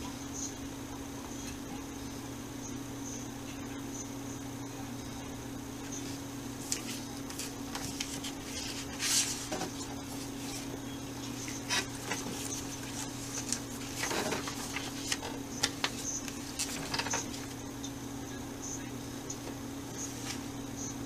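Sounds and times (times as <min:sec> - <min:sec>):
low electrical hum: 0:00.0 - 0:21.0
paper rustling: 0:05.9 - 0:17.6, 0:19.9 - 0:20.5.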